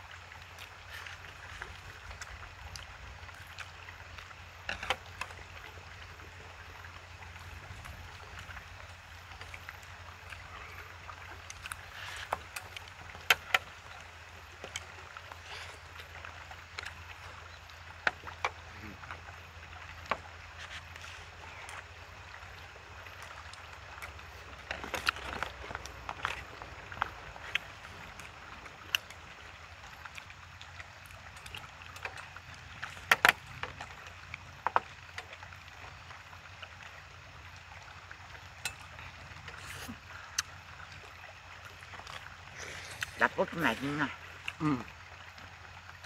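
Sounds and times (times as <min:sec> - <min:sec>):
chewing: 0:09.3 - 0:19.2, 0:20.0 - 0:35.8, 0:38.5 - 0:45.0.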